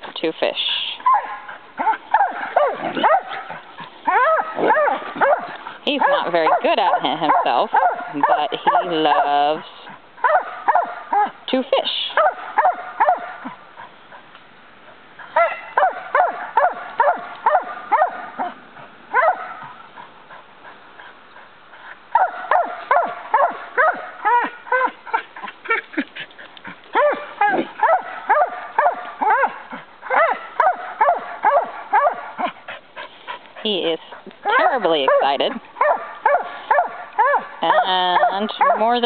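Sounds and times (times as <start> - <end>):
dog yipping and whining: 1.0 - 3.4, 4.1 - 9.3, 22.2 - 25.9, 27.0 - 32.2.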